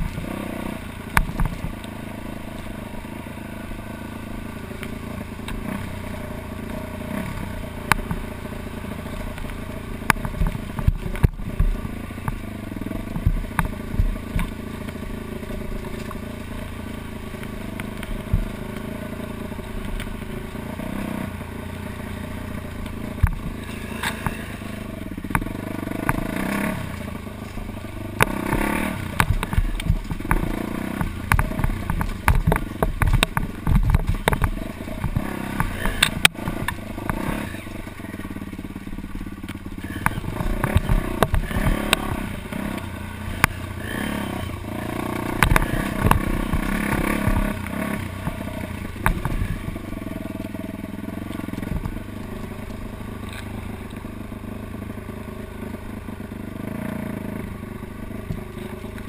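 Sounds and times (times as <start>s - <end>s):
knocks and rattles from rough ground: 0.0s - 2.8s, 9.0s - 21.1s, 22.1s - 54.1s
dirt bike engine revving: 0.0s - 59.0s.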